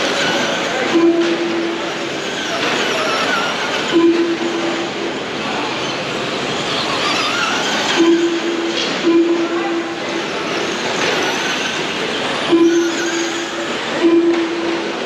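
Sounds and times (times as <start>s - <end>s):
low steady tone: 4.0s - 5.1s, 8.0s - 10.2s, 12.5s - 15.0s
rc car motors whining: 5.1s - 8.0s.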